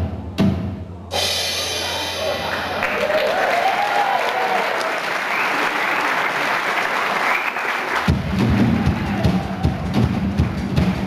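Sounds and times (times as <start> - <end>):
audience clapping: 2.2 - 11.0
low drum beats: 8.1 - 11.0.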